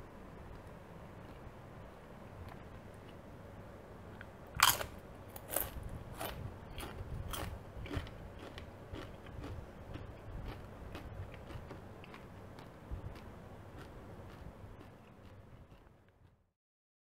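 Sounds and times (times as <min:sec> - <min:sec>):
crunchy chewing: 0:00.5 - 0:03.2, 0:04.1 - 0:16.4
crunching tortilla chip bite: 0:04.6 - 0:12.3.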